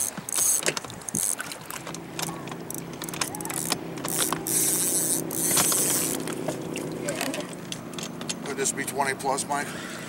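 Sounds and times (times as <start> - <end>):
fishing reel clicking and rattling: 0.0 - 6.4
low hum: 1.6 - 8.5.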